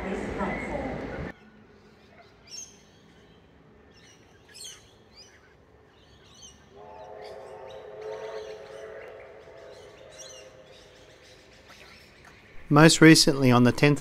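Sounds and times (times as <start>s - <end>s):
birds chirping: 0.0s - 14.0s
distant train whistle: 6.2s - 12.7s.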